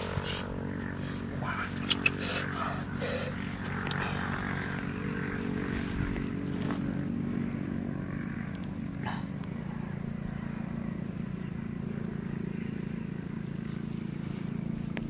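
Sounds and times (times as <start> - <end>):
small engine humming: 0.0 - 15.0.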